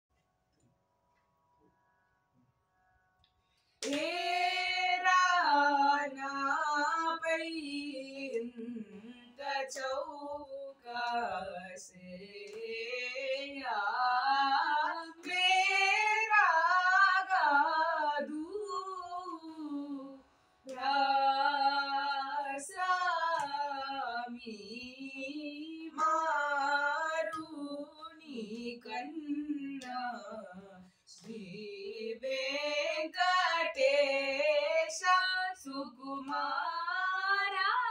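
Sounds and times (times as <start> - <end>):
boy and girl singing: 20.7 - 37.9.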